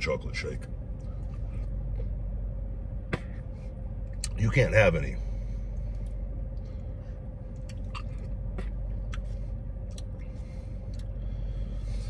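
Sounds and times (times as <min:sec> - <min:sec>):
steady low hum: 0:00.0 - 0:12.0
sharp lip clicks: 0:07.6 - 0:10.2.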